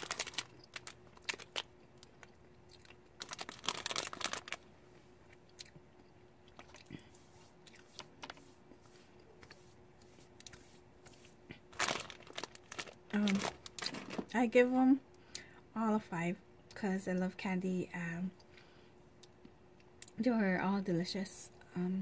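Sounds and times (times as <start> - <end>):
person chewing with mouth clicks: 5.3 - 8.0.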